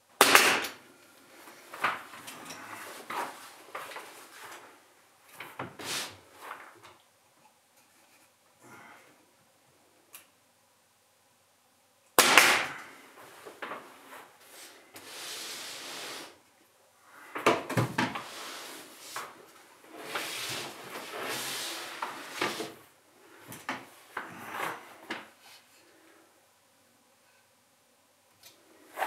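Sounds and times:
nail gun firing: 0.2 - 0.8, 12.2 - 12.8.

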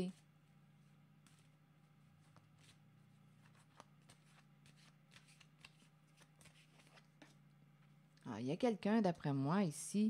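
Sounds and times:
cards being shuffled: 3.4 - 7.4.

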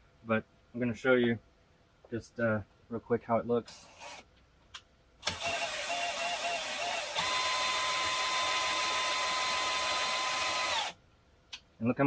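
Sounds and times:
power drill running: 5.2 - 11.0
die grinder whine: 5.3 - 11.0.

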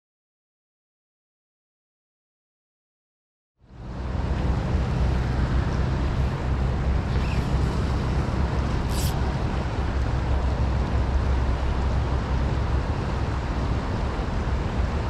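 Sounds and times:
river water rushing: 3.7 - 15.0
wind rumbling on microphone: 3.7 - 15.0.

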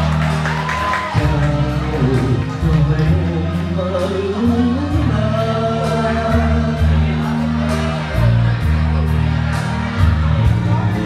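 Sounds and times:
band music with steady beat: 0.0 - 11.0
man singing into a microphone: 1.0 - 8.7.

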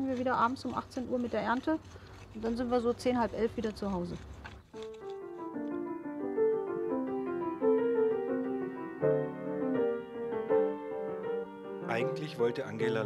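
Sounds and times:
piano playing: 4.8 - 13.0.

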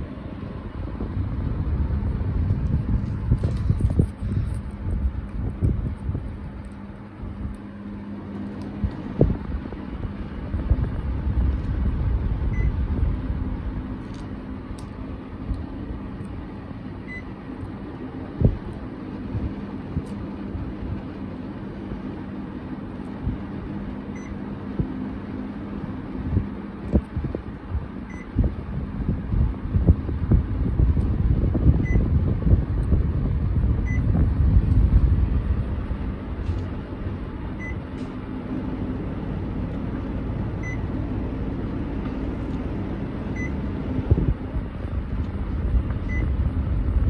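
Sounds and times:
low rumble: 0.0 - 22.1, 26.0 - 47.0
air conditioner fan hum: 0.0 - 47.0
air conditioner short beeps: 12.5 - 12.9, 17.0 - 17.4, 24.1 - 24.5, 28.1 - 28.4, 31.7 - 32.2, 33.8 - 34.2, 37.6 - 37.9, 40.6 - 41.0, 43.3 - 43.7, 46.0 - 46.4.

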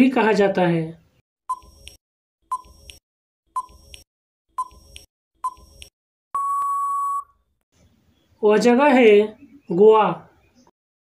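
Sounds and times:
long steady beep: 6.4 - 7.4.

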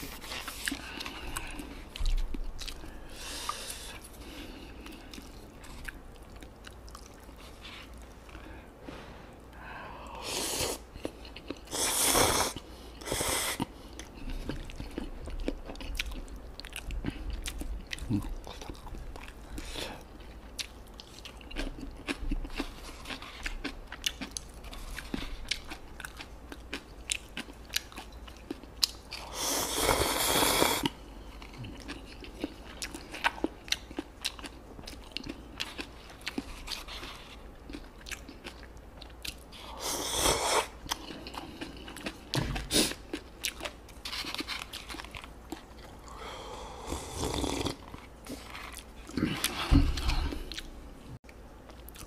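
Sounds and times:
wet chewing with mouth clicks: 0.0 - 8.5, 10.7 - 46.2, 46.9 - 52.0
loud noodle slurps: 46.9 - 47.8.

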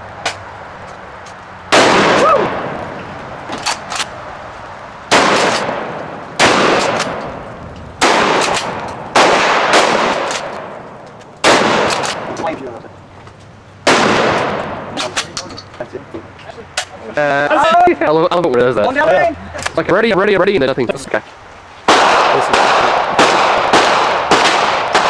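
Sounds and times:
shotgun blasts with echo: 1.7 - 2.8, 5.1 - 7.4, 8.0 - 12.4, 13.8 - 15.3, 21.9 - 25.0.

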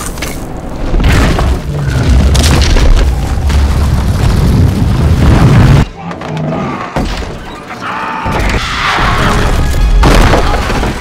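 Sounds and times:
deep crashing rumble: 0.8 - 5.8.

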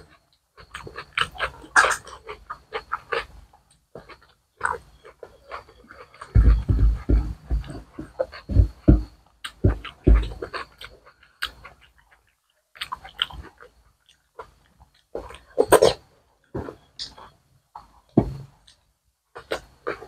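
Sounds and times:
wet chewing and lip smacks: 0.0 - 20.0.

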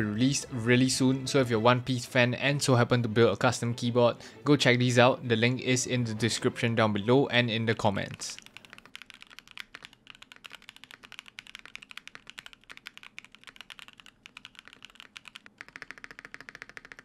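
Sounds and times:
mechanical keyboard typing: 7.9 - 17.0.

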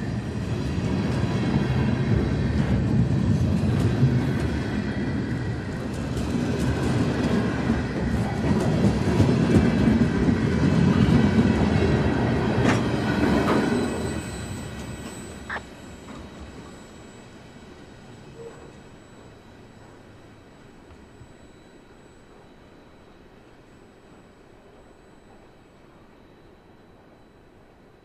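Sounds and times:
freight train wheels rolling on rail: 0.0 - 26.2.

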